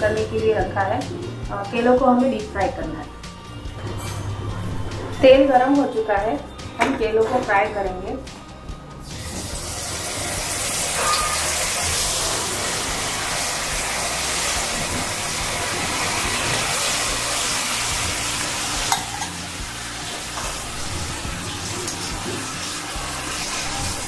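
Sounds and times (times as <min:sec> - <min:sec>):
oil sizzling and bubbling: 0:08.9 - 0:24.0.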